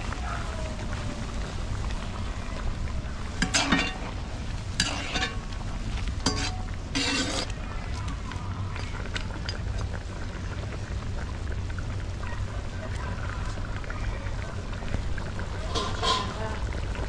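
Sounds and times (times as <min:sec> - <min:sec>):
steady low rumble: 0:00.0 - 0:15.7
utensil scraping a pot: 0:03.3 - 0:07.6, 0:15.7 - 0:16.4.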